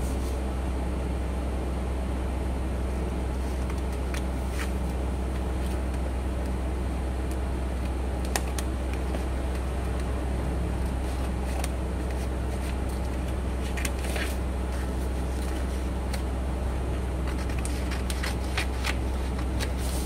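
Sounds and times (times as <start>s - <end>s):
steady low hum: 0.0s - 20.0s
paper rustling and folding: 3.3s - 6.1s, 7.8s - 10.0s, 10.8s - 16.3s, 17.2s - 20.0s.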